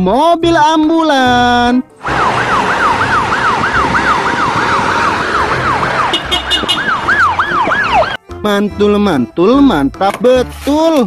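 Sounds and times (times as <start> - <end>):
ambulance siren yelping: 2.0 - 8.2.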